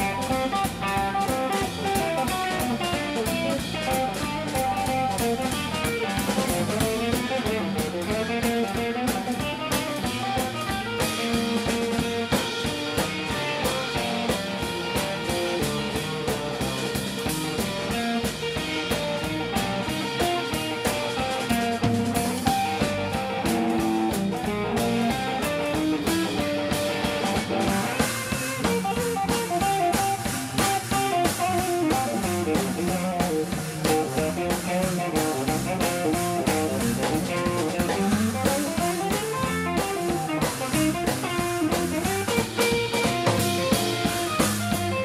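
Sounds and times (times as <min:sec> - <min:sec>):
drum kit beat: 0:00.0 - 0:45.0
electric bass: 0:00.0 - 0:45.0
electric guitar lead: 0:00.0 - 0:45.0.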